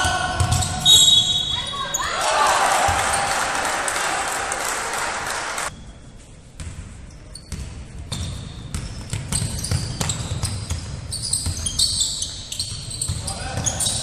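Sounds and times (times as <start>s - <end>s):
basketball bouncing in hall: 0.0s - 3.4s, 6.5s - 14.0s
short high shoe squeaks: 7.1s - 14.0s.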